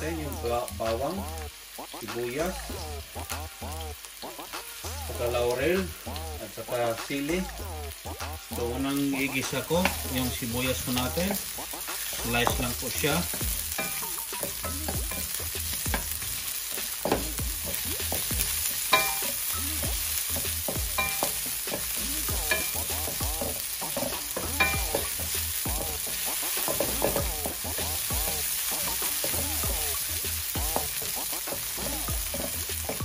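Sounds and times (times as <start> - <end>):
onion sizzling in oil: 0.0 - 33.0
spatula scraping a pan: 9.2 - 33.0
spatula knocking against pan: 12.4 - 16.2, 17.0 - 30.0, 30.6 - 33.0.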